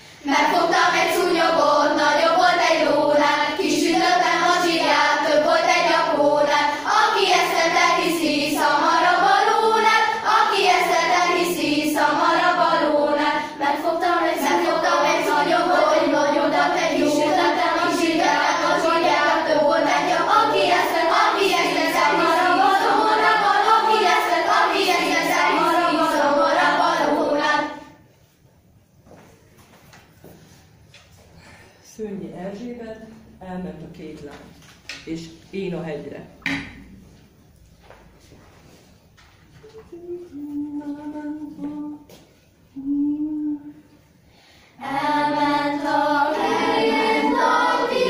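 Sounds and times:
girls' choir singing: 0.0 - 28.1, 44.7 - 48.0.

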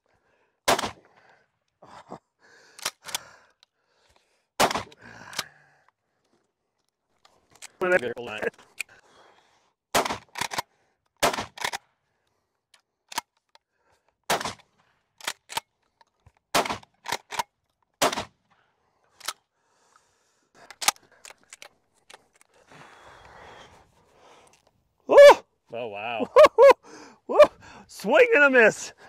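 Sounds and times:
shotgun shots: 0.7 - 1.0, 4.6 - 5.0, 9.9 - 10.6, 11.2 - 11.8, 14.3 - 14.6, 16.5 - 16.9, 18.0 - 18.3.

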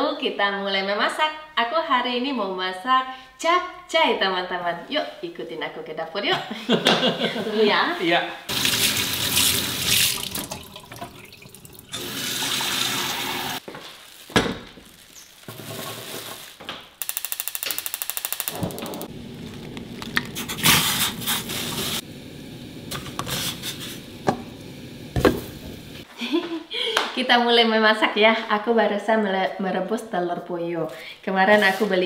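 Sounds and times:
rapid even clicking: 17.0 - 19.1.

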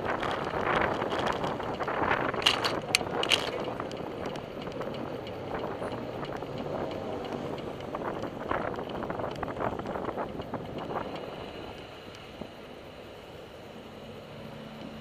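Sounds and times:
sharp clicks or rattles: 0.0 - 11.2
wind rushing over microphone: 0.0 - 13.2
car traffic: 0.0 - 15.0.

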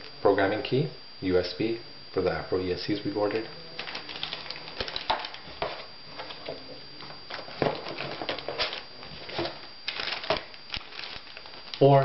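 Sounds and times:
rustling and crinkling plastic: 3.3 - 12.0.

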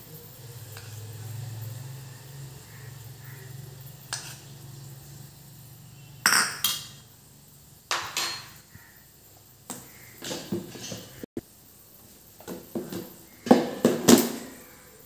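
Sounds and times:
metal spoon clinking on pan: 7.9 - 8.6.

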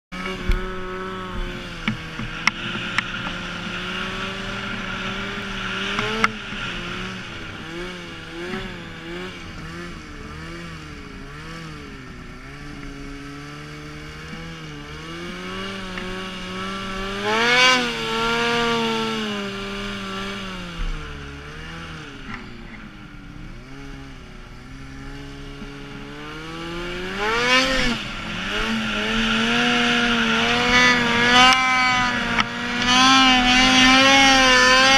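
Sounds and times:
snowmobile engine revving: 0.1 - 34.9.

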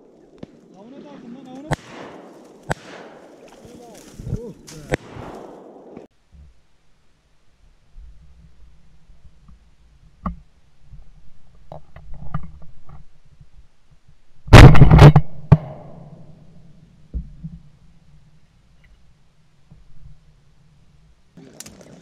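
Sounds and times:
gunshot echo: 0.4 - 3.5, 4.8 - 6.1, 14.5 - 16.4
shotgun blasts: 0.4 - 3.5, 4.8 - 6.1, 14.5 - 16.2.

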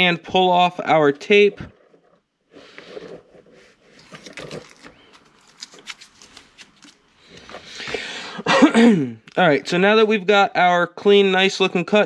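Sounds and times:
tape crackling and rustling: 1.6 - 8.0.

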